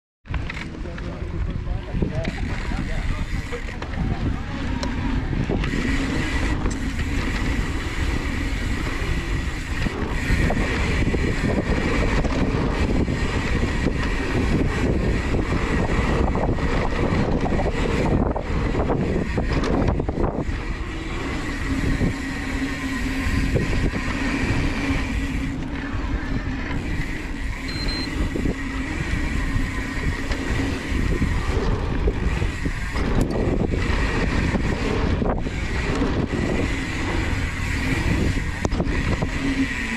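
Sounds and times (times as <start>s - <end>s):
bike tyre roar and frame rattle: 0.3s - 39.9s
wind buffeting microphone: 0.3s - 39.9s
faint steady whine: 17.6s - 33.8s.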